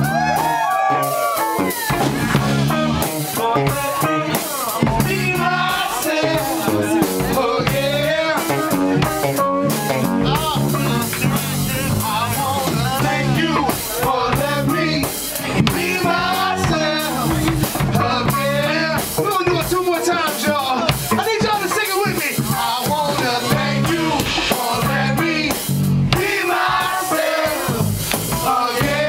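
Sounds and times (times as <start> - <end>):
bass guitar: 0.0 - 29.0
drum kit beat: 0.0 - 29.0
live band playing loud: 0.0 - 29.0
person singing: 2.7 - 19.3.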